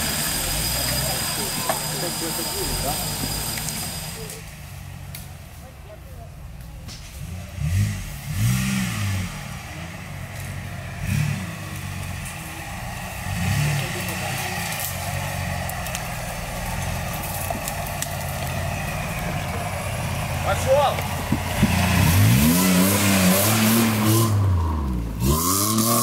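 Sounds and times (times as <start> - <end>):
car engine revving under load: 6.4 - 26.0.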